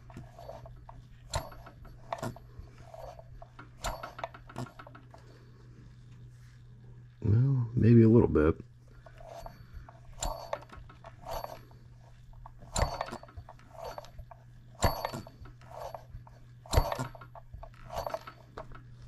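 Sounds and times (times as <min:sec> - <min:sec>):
model engine clicking clatter: 0:00.0 - 0:05.2, 0:12.5 - 0:19.0
steady low hum: 0:00.0 - 0:19.0.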